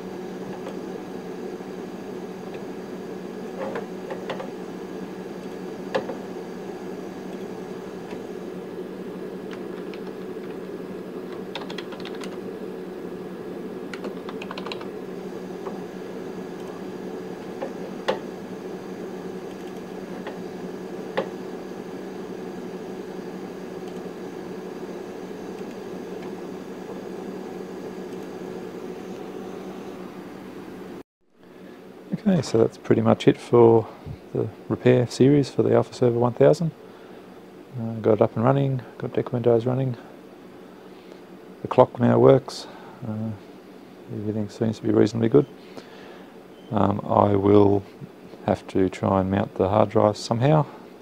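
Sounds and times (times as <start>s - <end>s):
machine hum: 0.0s - 51.0s
computer keyboard typing: 11.3s - 12.4s, 13.9s - 14.9s.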